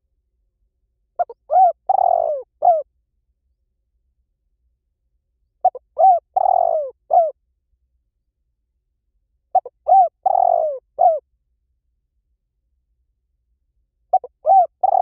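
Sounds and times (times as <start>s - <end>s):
dove cooing: 1.2s - 2.9s, 5.6s - 7.4s, 9.5s - 11.2s, 14.1s - 15.0s.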